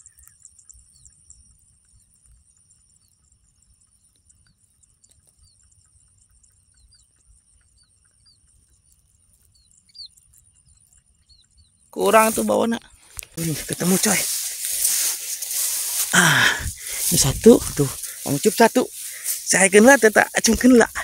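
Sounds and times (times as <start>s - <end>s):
short high insect chirps: 9.6s - 21.0s
high insect drone: 12.0s - 21.0s
wind rumble on microphone: 14.8s - 18.6s.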